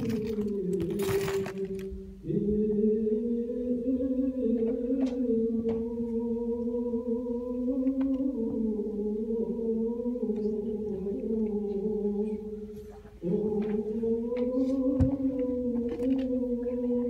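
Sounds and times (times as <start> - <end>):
chant-like singing: 0.0 - 17.0.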